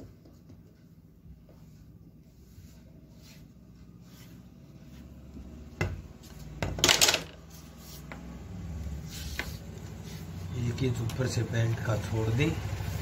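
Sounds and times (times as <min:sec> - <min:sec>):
wooden ruler clattering and scraping: 0:06.5 - 0:08.2.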